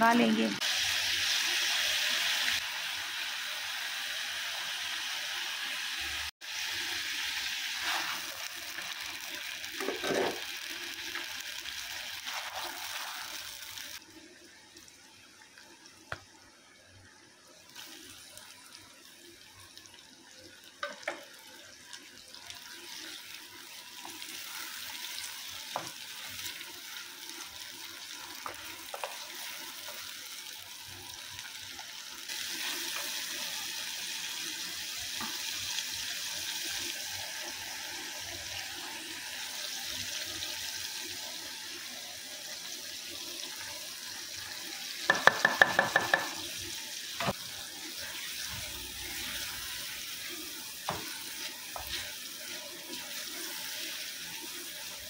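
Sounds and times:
chicken sizzling in hot oil: 0:00.0 - 0:55.0
wooden spoon tapping pot: 0:45.1 - 0:46.4.

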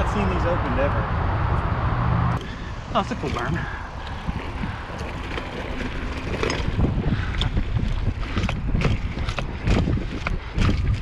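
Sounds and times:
wind buffeting microphone: 0:00.0 - 0:11.0
tyres rumbling over dirt trail: 0:02.7 - 0:11.0
bike clicks and rattles: 0:04.0 - 0:11.0.

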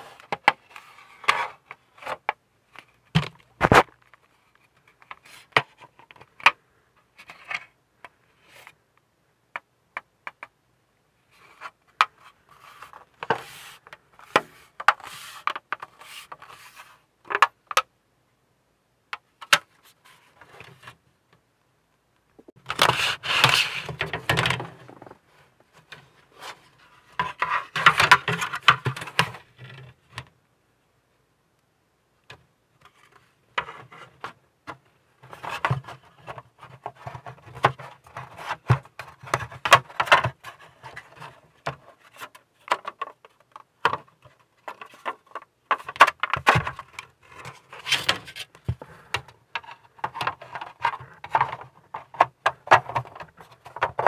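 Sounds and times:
plastic rubbing on plastic: 0:22.7 - 0:25.1
plastic parts clicking and tapping: 0:32.2 - 0:47.1, 0:47.9 - 0:54.0.

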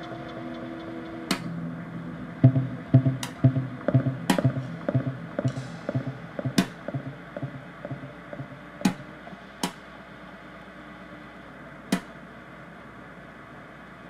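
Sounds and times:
percussion strikes: 0:00.0 - 0:09.8
soft guitar-like notes: 0:00.0 - 0:09.8.

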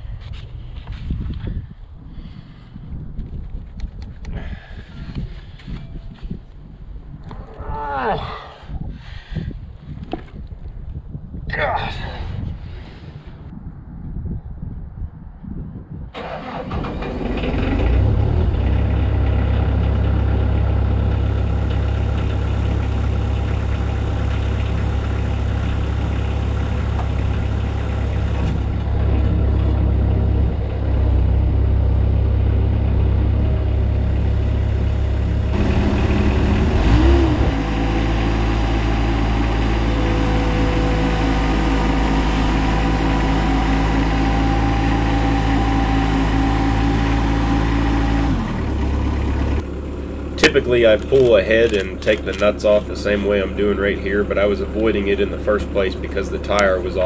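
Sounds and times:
diesel engine running: 0:16.2 - 0:57.0.

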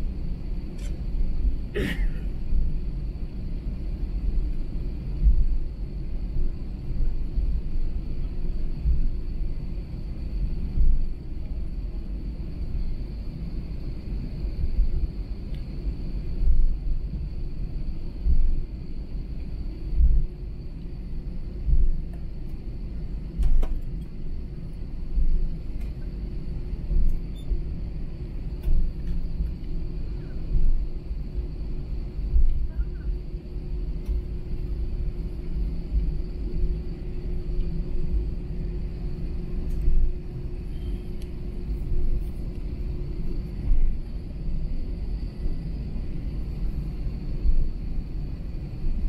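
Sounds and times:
aircraft cabin rumble: 0:00.0 - 0:49.0
faint high whine: 0:00.0 - 0:49.0
low bumps of rolling aircraft: 0:00.0 - 0:49.0
airliner bumps: 0:23.3 - 0:24.0.

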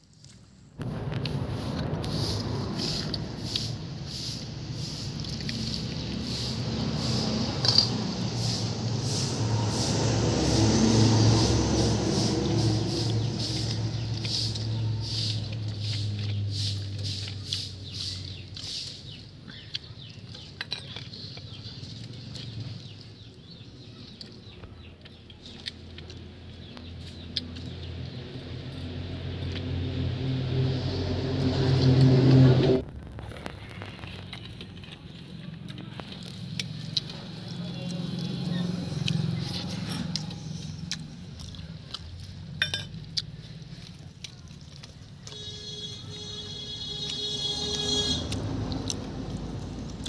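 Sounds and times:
low motor hum: 0:00.8 - 0:16.8.

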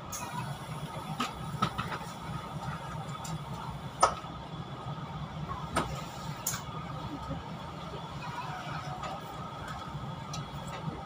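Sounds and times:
low hum in train carriage: 0:00.0 - 0:11.0.

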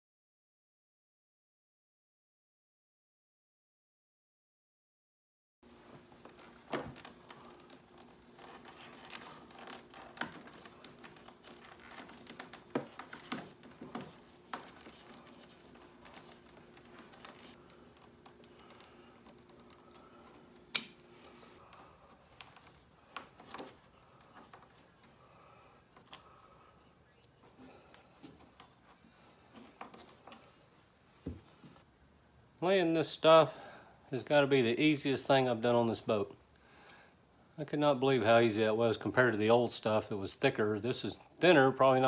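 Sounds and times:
steady low hum: 0:05.7 - 0:32.6.

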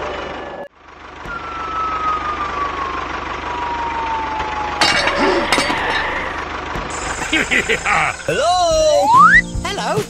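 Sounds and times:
tractor diesel engine running: 0:00.7 - 0:08.7
thin falling tone: 0:04.7 - 0:06.4.

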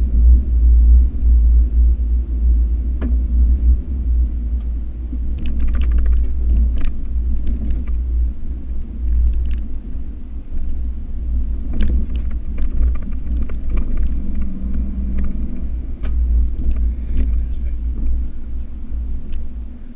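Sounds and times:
engine and tyres rumbling: 0:00.0 - 0:19.9
clicks and rattles: 0:05.3 - 0:08.0, 0:09.0 - 0:09.7, 0:11.7 - 0:18.2.

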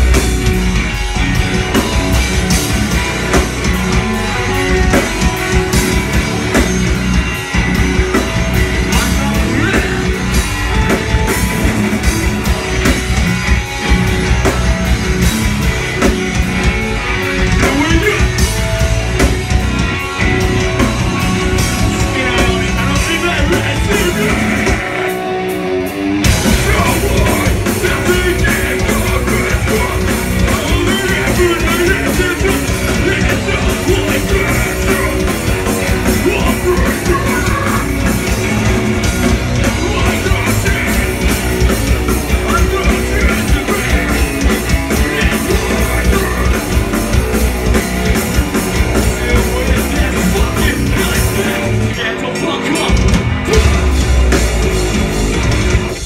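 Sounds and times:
live metal band playing: 0:00.0 - 0:56.0
vocalist on microphone: 0:08.8 - 0:10.4, 0:17.5 - 0:18.5, 0:21.8 - 0:25.3, 0:26.4 - 0:38.1, 0:39.5 - 0:41.5, 0:42.2 - 0:46.9, 0:48.8 - 0:54.6.

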